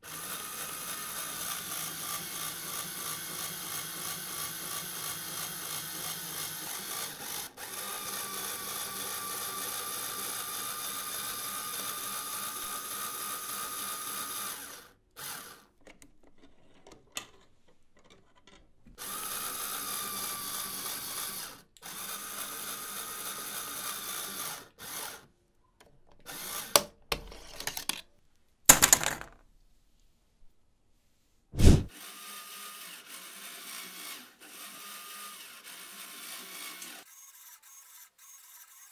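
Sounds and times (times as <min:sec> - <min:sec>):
electric motors whirring through gears: 0:00.0 - 0:15.6, 0:19.0 - 0:25.2, 0:31.6 - 0:38.9.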